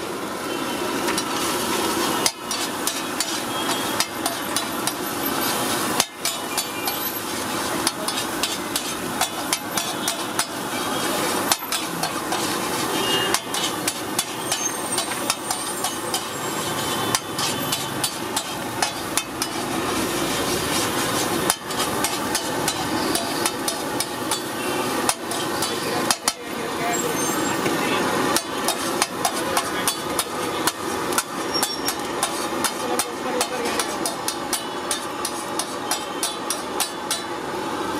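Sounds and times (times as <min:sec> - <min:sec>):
metal spatula clattering on griddle: 0:02.2 - 0:26.6, 0:28.3 - 0:37.4.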